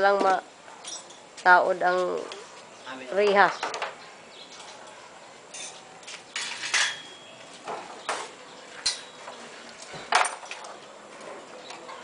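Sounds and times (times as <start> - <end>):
metallic clinks of steel parts: 0.8 - 1.2.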